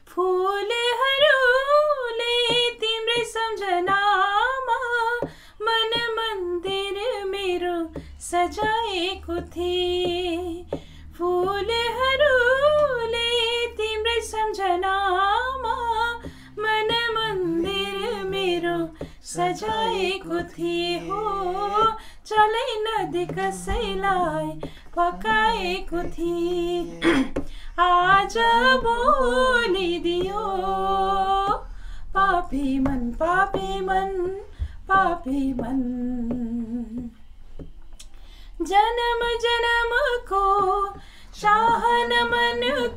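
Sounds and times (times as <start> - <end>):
woman singing: 0.0 - 37.7, 38.6 - 42.9
man singing: 17.2 - 31.6, 41.4 - 42.9.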